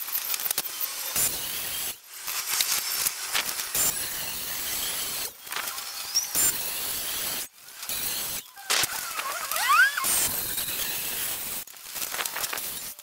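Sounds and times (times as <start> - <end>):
circular saw cutting metal: 0.7 - 2.0, 3.6 - 11.7
high hissing screech: 8.2 - 11.4.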